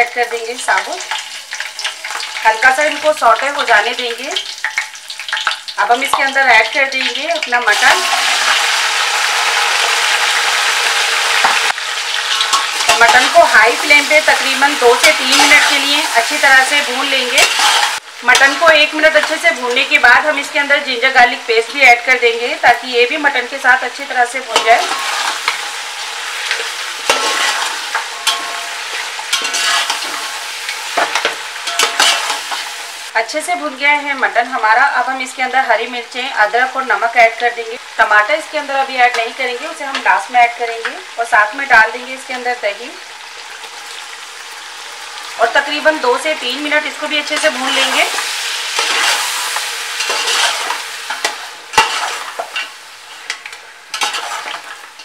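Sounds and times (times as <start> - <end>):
meat sizzling in hot fat: 0.0 - 55.0
metal spoon scraping a pot: 17.3 - 18.5, 24.6 - 25.8, 26.4 - 32.7, 47.3 - 54.8.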